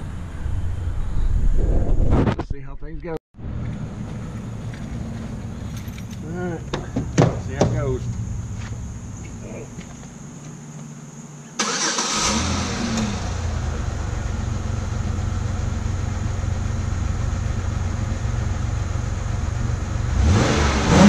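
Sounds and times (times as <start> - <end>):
car engine starting and idling: 3.4 - 10.4, 11.6 - 21.0.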